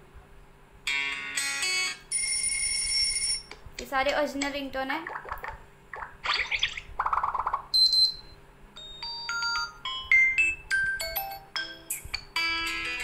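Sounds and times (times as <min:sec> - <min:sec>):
rapidly pulsing ringtone: 0:01.0 - 0:03.5, 0:06.4 - 0:08.2, 0:08.8 - 0:13.0.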